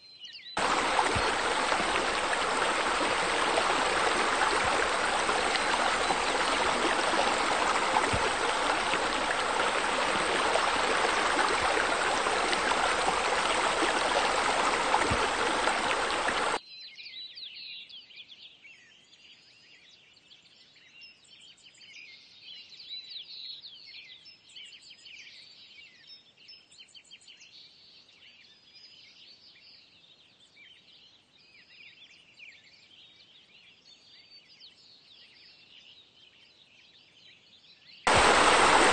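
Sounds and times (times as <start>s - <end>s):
birds chirping: 0.6s - 16.6s, 38.1s - 38.9s
flowing spilling water: 0.6s - 16.6s, 38.1s - 38.9s.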